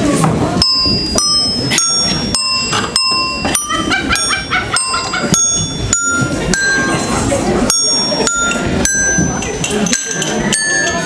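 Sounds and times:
bell-like chimes: 0:00.6 - 0:11.0.

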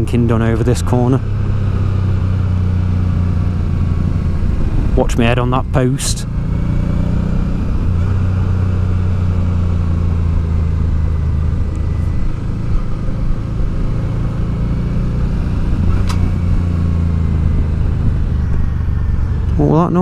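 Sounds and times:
motorcycle engine running: 0:00.0 - 0:20.0
wind rush: 0:01.2 - 0:08.4, 0:15.6 - 0:19.8
brief sharp click: 0:16.0 - 0:16.3.

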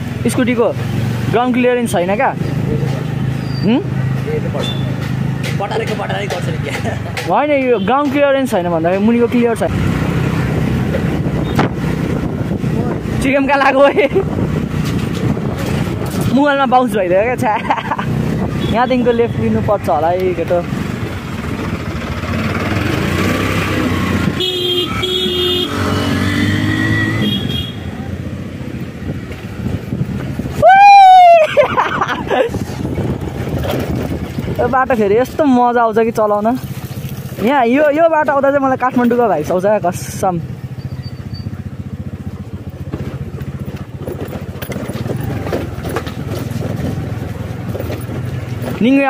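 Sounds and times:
scooter engine and road noise: 0:00.0 - 0:49.0
vehicle horn honking: 0:24.4 - 0:26.0, 0:27.0 - 0:27.9
clicks and rattles: 0:43.0 - 0:48.8.

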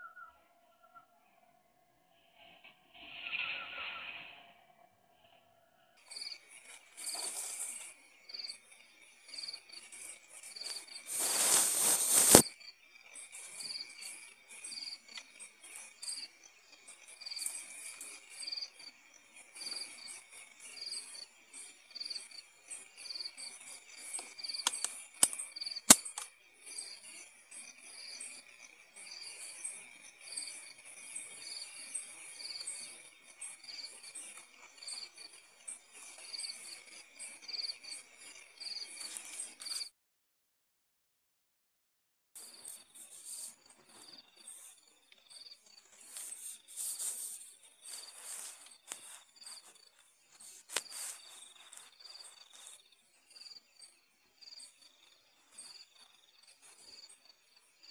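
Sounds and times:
crickets chirping: 0:06.0 - 0:39.9, 0:42.4 - 0:57.9
sharp clicks: 0:24.2 - 0:26.3.

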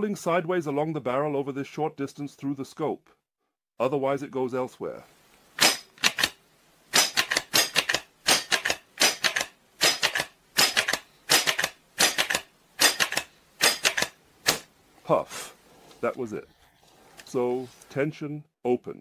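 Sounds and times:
air rifle pump clicks: 0:05.6 - 0:06.4, 0:07.0 - 0:14.7.

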